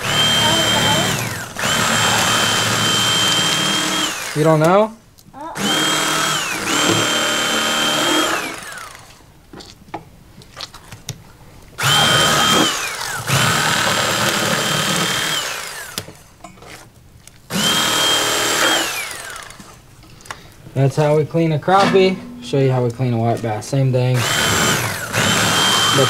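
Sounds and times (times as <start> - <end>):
electric fillet knife motor whine: 0.0 - 4.5, 5.6 - 9.1, 11.8 - 16.1, 17.5 - 19.6, 24.2 - 26.0.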